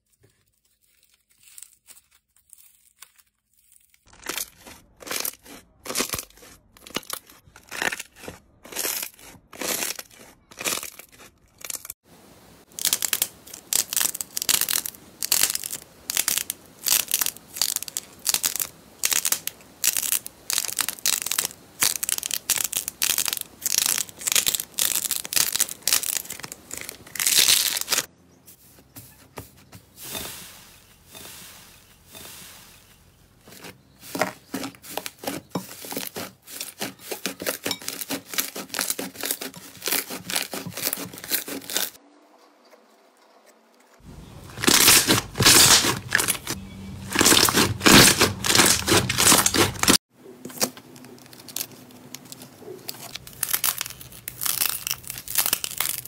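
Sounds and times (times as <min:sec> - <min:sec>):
slime crackling and popping: 0:12.7 - 0:28.1, 0:44.6 - 0:50.0, 0:51.1 - 0:56.0.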